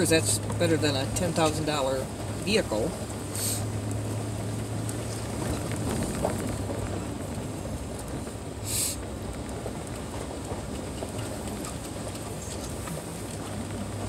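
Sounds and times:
engine hum: 0:00.0 - 0:14.0
tyre and road rumble: 0:00.0 - 0:14.0
short hiss: 0:03.4 - 0:03.6, 0:08.6 - 0:09.0.

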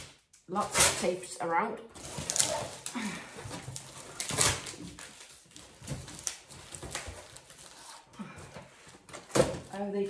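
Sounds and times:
tape ripping: 0:00.0 - 0:01.2, 0:02.0 - 0:03.0, 0:03.6 - 0:08.1
plastic wrap rustling: 0:00.0 - 0:10.0.

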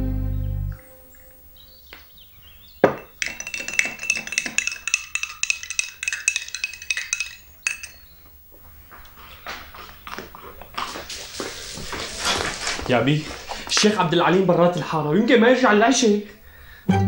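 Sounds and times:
metal spoon clinking against glass: 0:02.8 - 0:08.2.

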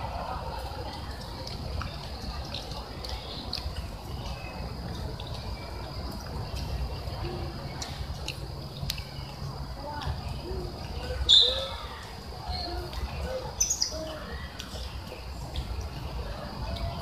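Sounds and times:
macaques chirping coos: 0:11.0 - 0:11.9, 0:12.5 - 0:14.3
baby macaque high squeal: 0:11.3 - 0:11.8.

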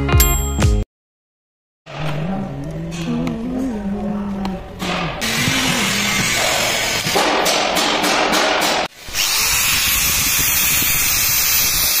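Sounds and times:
power tool motor running: 0:05.2 - 0:07.2, 0:09.0 - 0:12.0.

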